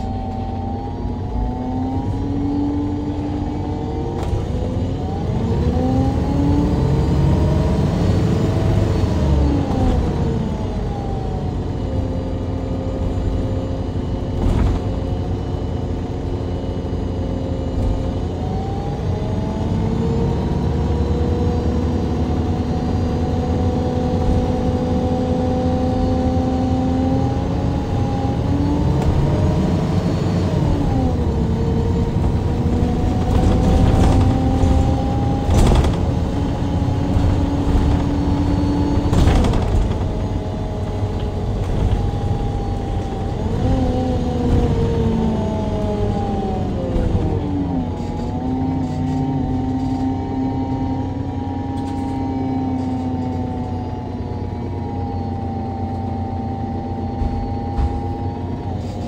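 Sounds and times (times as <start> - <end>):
bus engine and gearbox whining: 0.0 - 59.0
knocks and rattles: 32.2 - 40.6.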